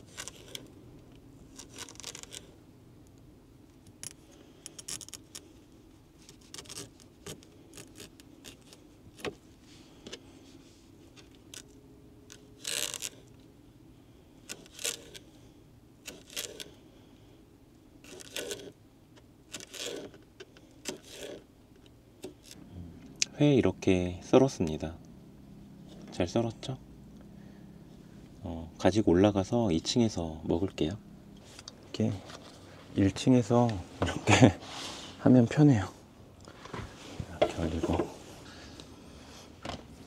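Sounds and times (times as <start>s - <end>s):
steady low hum: 0.0s - 40.0s.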